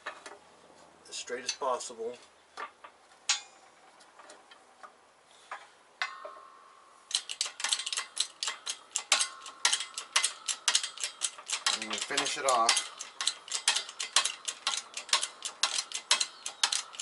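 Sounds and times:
metal clanks: 0:02.6 - 0:04.6, 0:05.5 - 0:17.0.

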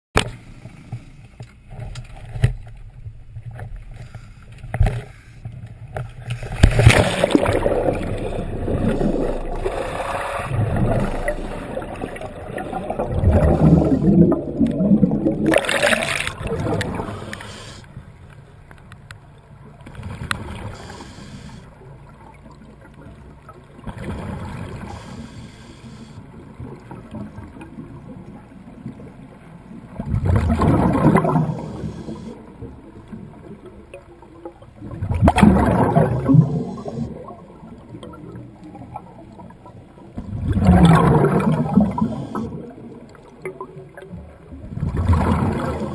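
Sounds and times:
underwater bubbling and gurgling: 0:00.2 - 0:45.9
muffled underwater hiss: 0:03.9 - 0:05.5, 0:16.2 - 0:18.2, 0:20.3 - 0:22.0, 0:24.7 - 0:26.6, 0:31.2 - 0:32.8, 0:36.0 - 0:37.6, 0:40.8 - 0:43.0.

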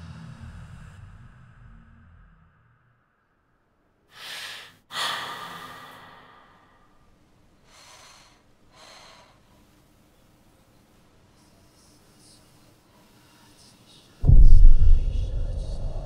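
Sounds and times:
woman breathing heavily: 0:04.1 - 0:10.2.

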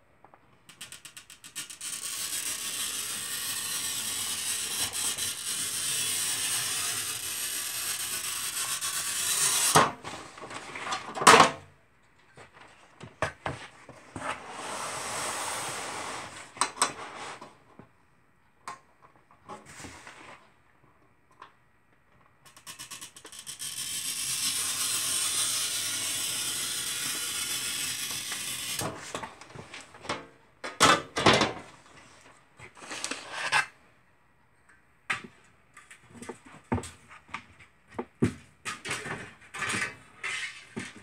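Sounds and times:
glass cutter scoring glass: 0:00.7 - 0:09.9, 0:22.5 - 0:29.0.

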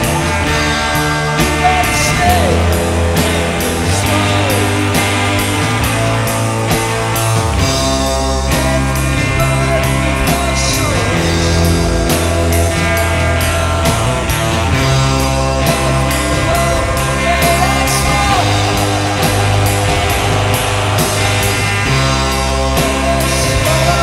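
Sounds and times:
loud psychedelic rock music: 0:00.0 - 0:24.0.

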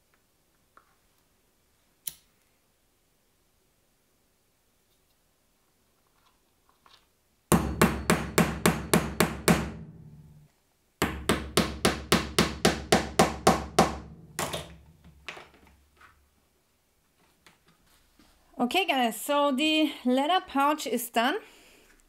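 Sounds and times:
hammer striking metal punch: 0:07.5 - 0:10.4, 0:11.0 - 0:15.1.

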